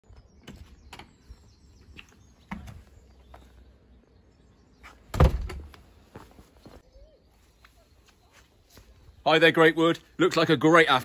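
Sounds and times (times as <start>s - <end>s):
door closing with bang: 5.1s - 5.7s.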